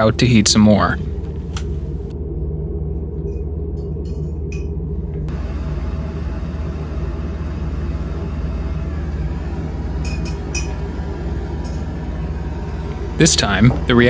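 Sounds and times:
constant low hum: 0.0s - 14.0s
gas torch flame hissing: 5.3s - 14.0s.

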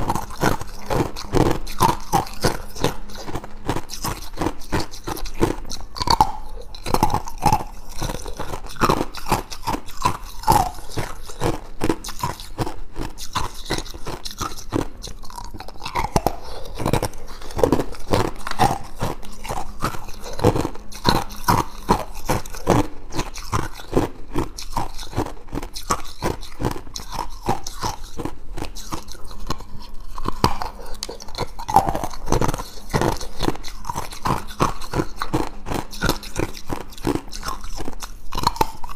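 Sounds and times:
ice cubes being chewed: 0.0s - 38.9s.

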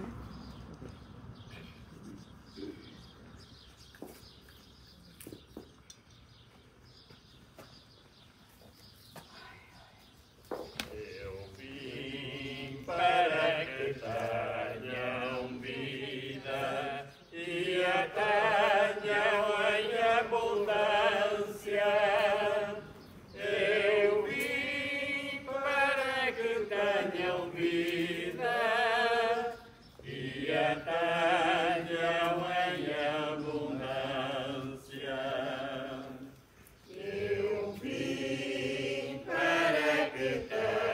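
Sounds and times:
people singing a hymn: 10.9s - 40.9s.

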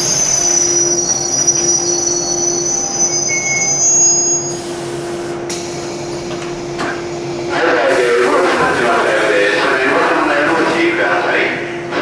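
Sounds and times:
electric train hum: 0.0s - 12.0s
high whine from train equipment: 0.0s - 12.0s.

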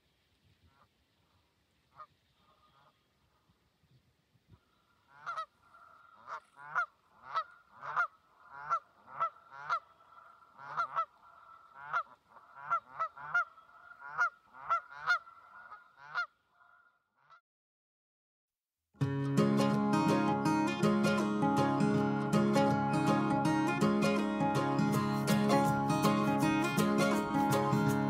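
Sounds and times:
geese honking: 1.9s - 3.1s, 5.0s - 16.9s.

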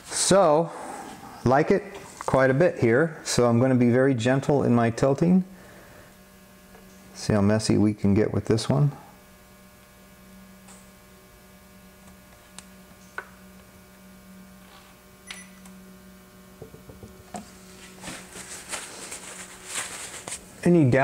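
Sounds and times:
electrical mains hum: 0.0s - 21.0s
small knocks: 16.6s - 17.5s
light rustling: 17.4s - 20.5s.

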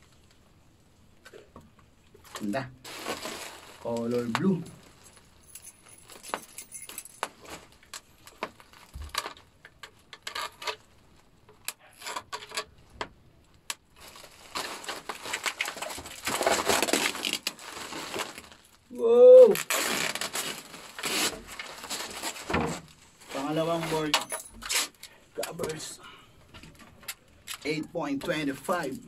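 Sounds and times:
plastic wrap crinkling: 2.2s - 11.3s, 13.9s - 19.0s, 19.6s - 26.0s.

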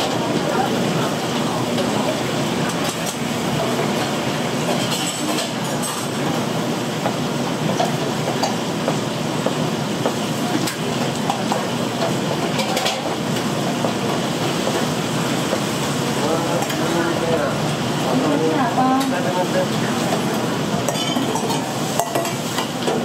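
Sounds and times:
food deep-frying in oil: 0.0s - 23.0s.

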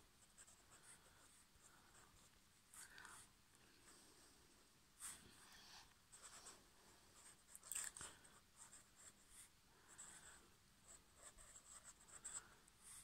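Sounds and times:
pen scratching on paper: 0.4s - 3.3s, 7.2s - 13.0s.

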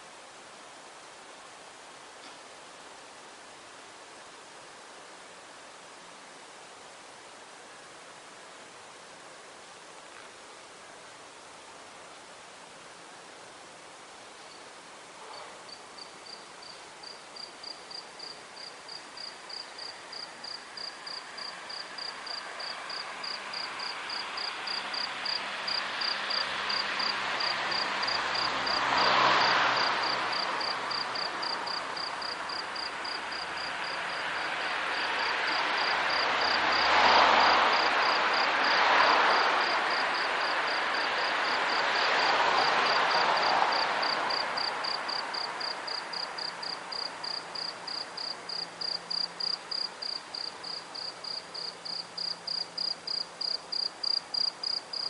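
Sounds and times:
cricket chirping: 14.4s - 55.0s
broad rushing noise: 21.0s - 47.2s.

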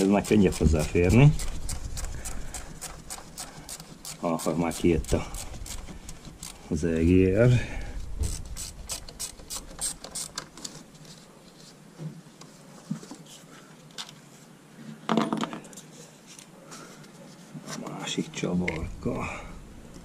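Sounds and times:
ratchet wrench clicking: 8.3s - 10.4s.

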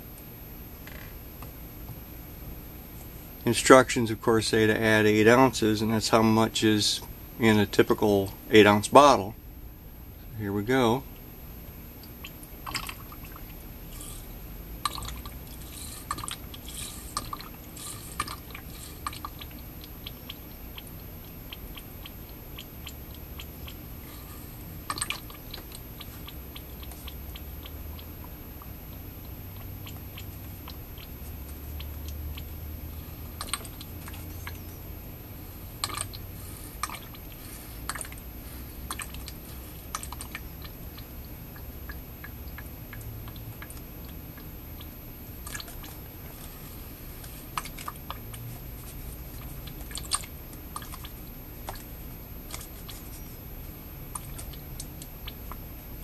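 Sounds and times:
liquid gurgling into pipe: 12.2s - 28.3s, 35.8s - 41.3s.

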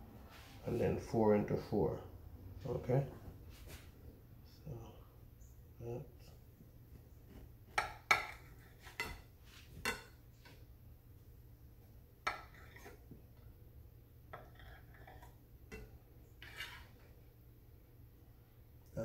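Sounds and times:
knife clinking and scraping on plate: 7.8s - 10.6s, 12.2s - 13.0s, 14.3s - 17.0s.

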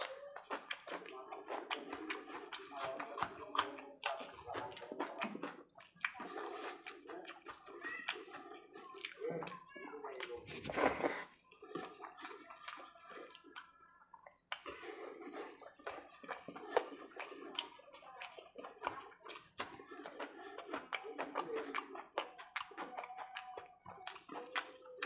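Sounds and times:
fingers squishing through food: 0.0s - 25.0s
wet chewing and lip-smacking: 0.0s - 25.0s.

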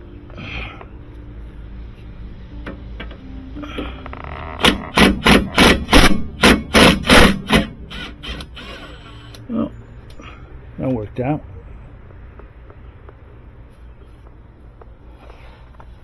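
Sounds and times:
impact wrench hammering: 4.6s - 8.5s.

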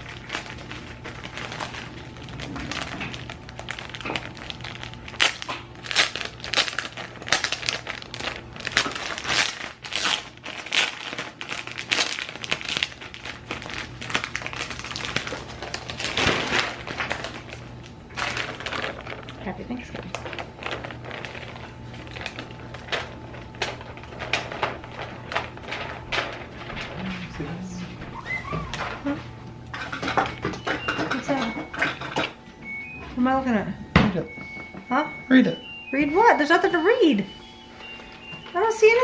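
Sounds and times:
plastic packaging crinkling: 0.0s - 29.2s, 35.8s - 39.0s.

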